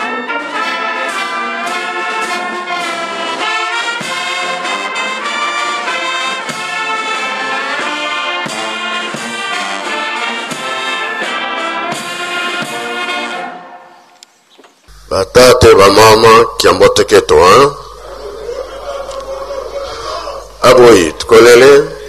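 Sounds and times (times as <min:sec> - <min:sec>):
brass band playing slow tune: 0:00.0 - 0:14.1.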